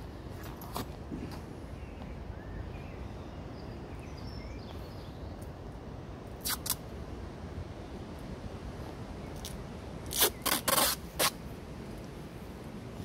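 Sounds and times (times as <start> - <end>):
faint birdsong chirps: 1.2 - 6.2.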